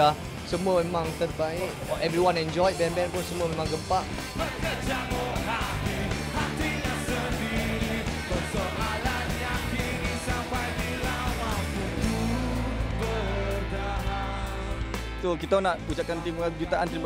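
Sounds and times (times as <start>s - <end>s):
rock band playing live: 0.0s - 17.0s
person singing: 4.4s - 15.0s.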